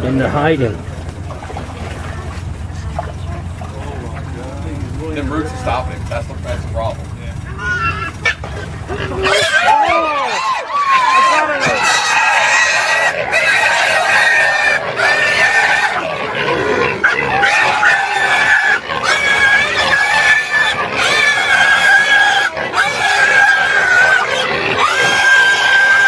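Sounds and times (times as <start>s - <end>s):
hog squealing: 7.4s - 26.0s.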